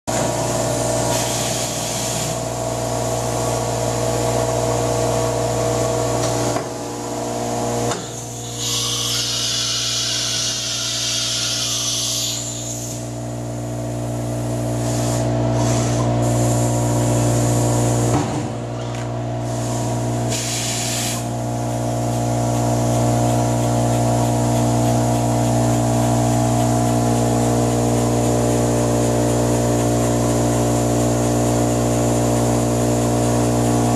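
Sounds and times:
compressed air hiss: 0:01.1 - 0:02.5, 0:07.9 - 0:13.2, 0:14.8 - 0:16.7, 0:19.4 - 0:21.4.

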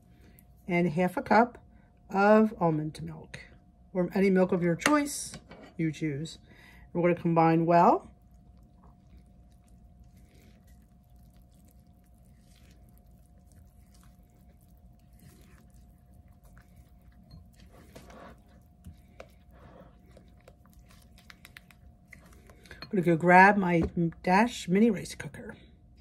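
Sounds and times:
faint steady hum: 0:00.0 - 0:26.0
spatula stirring thick batter: 0:08.2 - 0:23.4.

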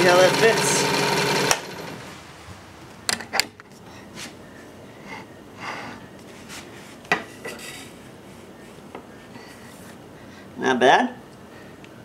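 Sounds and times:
soft rustles: 0:02.0 - 0:05.3, 0:05.9 - 0:10.1.

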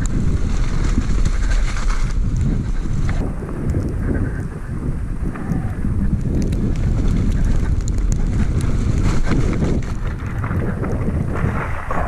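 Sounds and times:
bike clicks and rattles: 0:00.0 - 0:12.0
wind buffeting microphone: 0:00.0 - 0:12.0.

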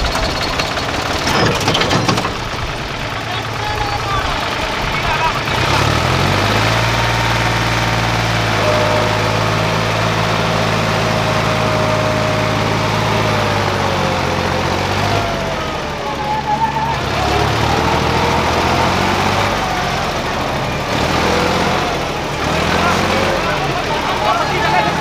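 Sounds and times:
tractor diesel engine under load: 0:00.0 - 0:25.0.

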